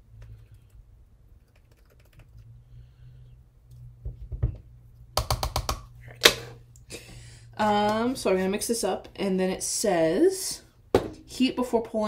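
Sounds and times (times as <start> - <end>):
spoon tapping plastic bowl: 5.2 - 5.9.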